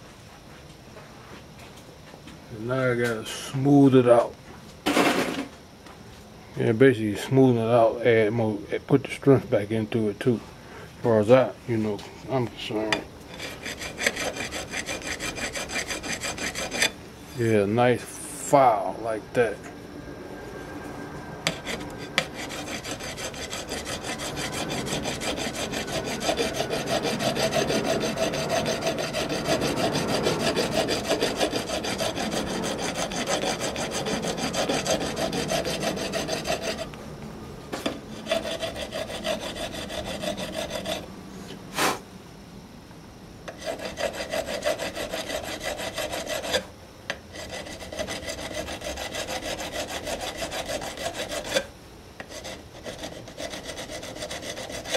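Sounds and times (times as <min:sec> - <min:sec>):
hand file scraping metal: 0:12.8 - 0:17.6, 0:21.5 - 0:37.0, 0:37.8 - 0:41.6, 0:43.5 - 0:46.7, 0:47.3 - 0:54.9.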